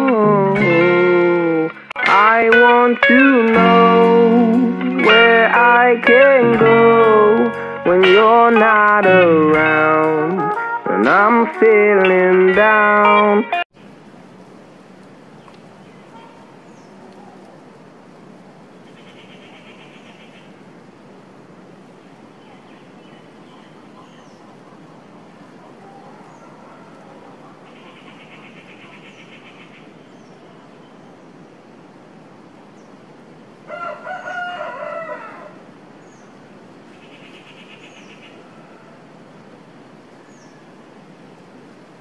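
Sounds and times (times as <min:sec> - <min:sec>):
outdoor background noise: 0:00.0 - 0:42.0
rooster crowing: 0:33.7 - 0:35.7.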